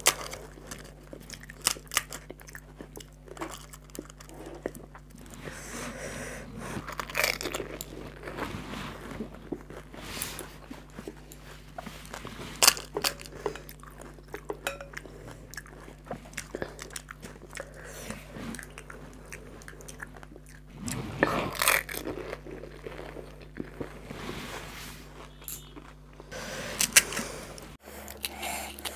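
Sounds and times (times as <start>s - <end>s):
fried shells cracking: 0.0s - 4.4s
crisp shells crunching and chewing: 0.0s - 5.6s, 6.4s - 24.2s, 25.2s - 28.9s.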